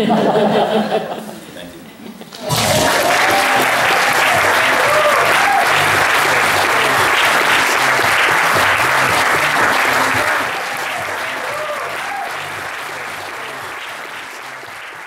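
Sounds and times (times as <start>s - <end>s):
audience applauding: 2.3s - 15.0s
audience whooping: 2.3s - 15.0s.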